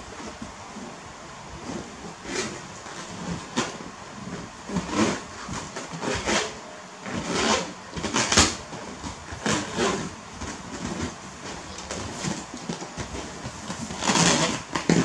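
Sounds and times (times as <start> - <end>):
balloons squeaky rubbing: 1.6 - 3.8, 4.7 - 15.0.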